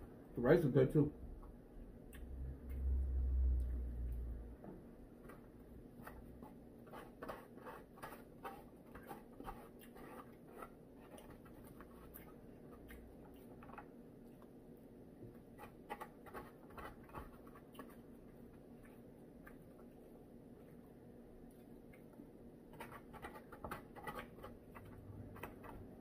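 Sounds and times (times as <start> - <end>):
fork scraping takeout container: 6.0 - 12.9, 22.7 - 26.0.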